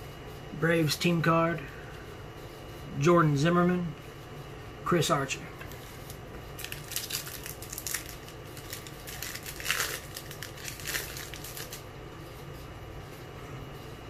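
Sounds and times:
foil wrapper crinkling and tearing: 5.7s - 11.9s.

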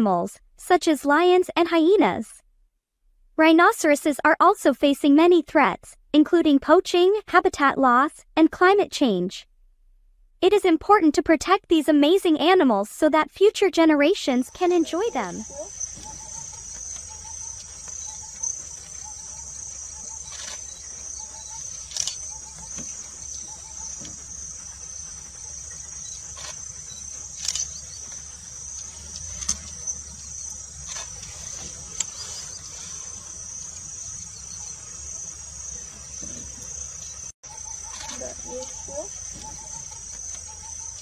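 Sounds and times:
insects chirring: 14.3s - 41.0s.

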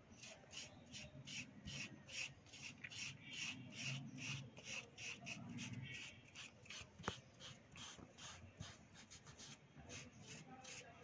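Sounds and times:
cotton wool scrubbing on paper: 0.2s - 11.0s.

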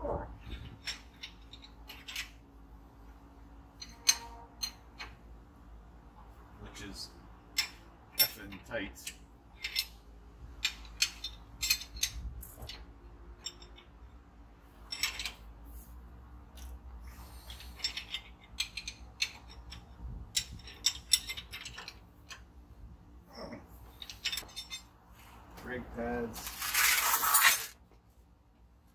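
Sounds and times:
metal wrenches clicking on bolts: 0.4s - 2.4s, 3.8s - 5.2s, 7.5s - 10.0s, 10.6s - 14.0s, 14.8s - 15.4s, 17.5s - 22.5s, 23.9s - 24.9s.

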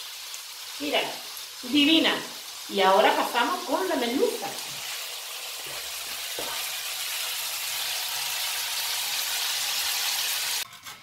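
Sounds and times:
seafood sizzling in a frying pan: 0.0s - 10.6s.

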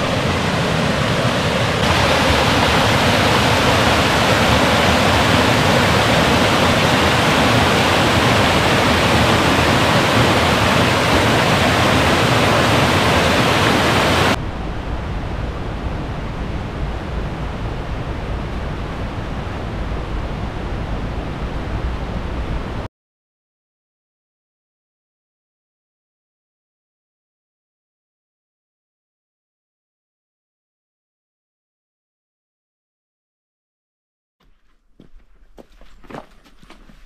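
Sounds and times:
waterfall rushing: 0.0s - 14.4s.

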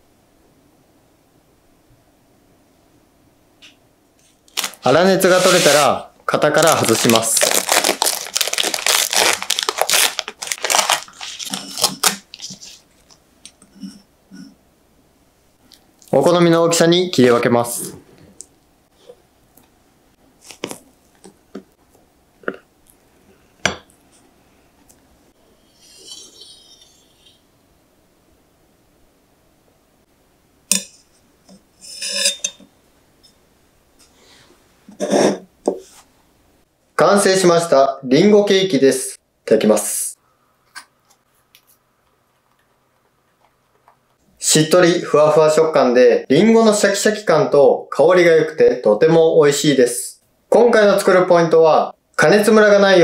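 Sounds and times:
baking paper crinkling: 4.5s - 13.2s, 20.4s - 21.3s
metal server clinking on plates: 31.8s - 32.6s.

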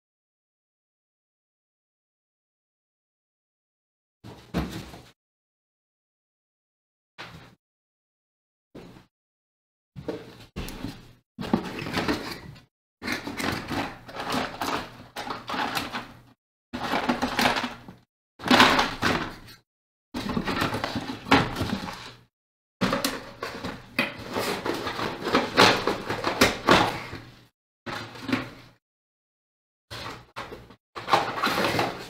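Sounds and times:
small parts clattering and rattling: 16.8s - 19.6s.

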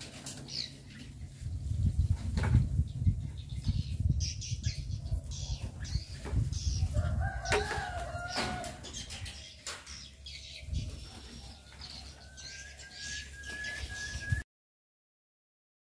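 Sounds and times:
high bird chirps: 2.9s - 14.4s.

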